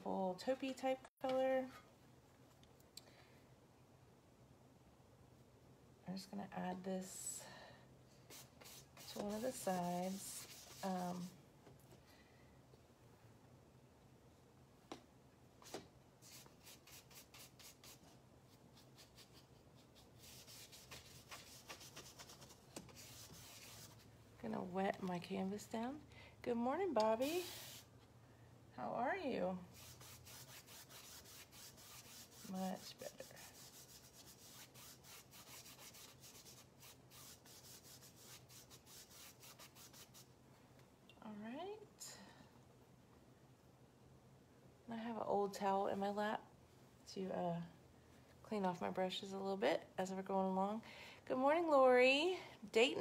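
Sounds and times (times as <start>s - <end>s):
paintbrush strokes on canvas: 8.3s - 11.4s, 15.6s - 24.1s, 27.2s - 27.9s, 29.7s - 40.3s.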